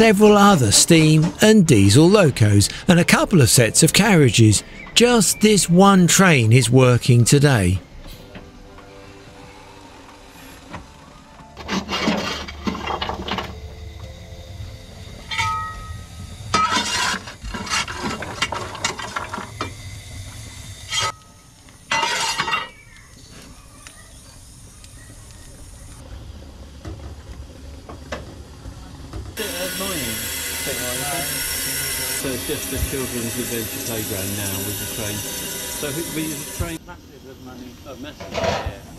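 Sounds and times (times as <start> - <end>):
steam locomotive low rumble: 12.6 - 16.6.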